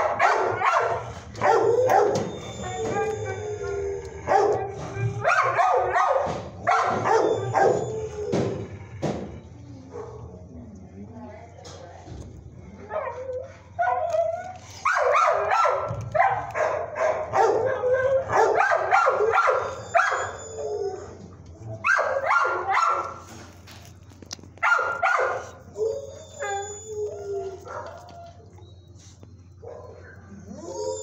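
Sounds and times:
dogs barking: 0.0s - 8.7s, 14.8s - 20.4s, 21.8s - 23.2s, 24.6s - 26.8s, 27.5s - 28.2s, 29.6s - 30.4s
dog howling: 0.0s - 9.0s, 17.3s - 23.2s, 24.9s - 28.7s, 30.1s - 31.0s.

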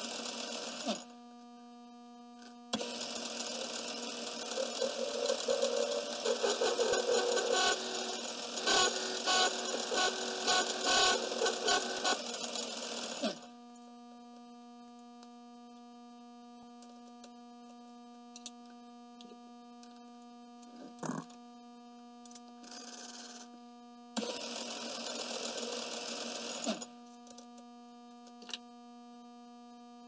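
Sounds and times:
metal lathe running: 3.1s - 13.4s.

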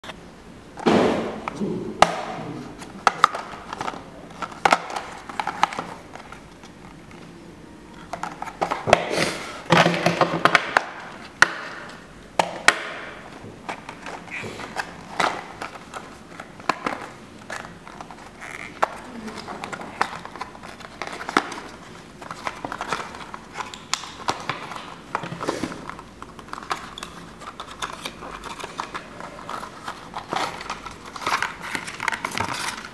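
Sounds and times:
boxes sliding and rustling: 24.8s - 32.9s.

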